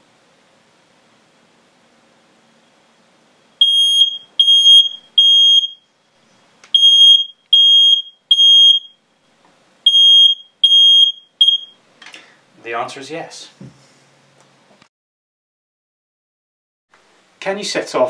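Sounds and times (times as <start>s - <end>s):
smoke alarm beeping: 3.6s - 5.9s, 6.8s - 9.0s, 9.9s - 11.8s.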